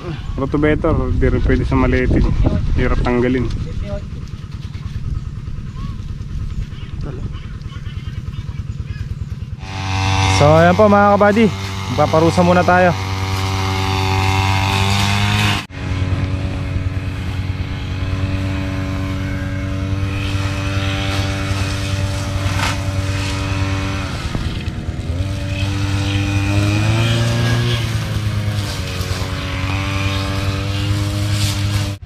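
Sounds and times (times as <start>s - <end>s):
diesel engine running under load: 3.4s - 14.7s, 15.7s - 30.0s.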